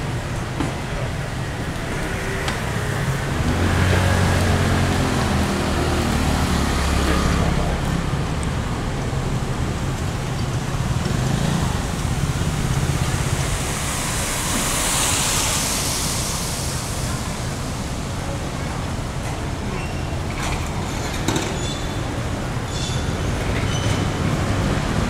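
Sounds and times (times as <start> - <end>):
passing traffic: 0.0 - 25.0
vehicle engine humming: 0.0 - 25.0
hiss: 11.2 - 20.0.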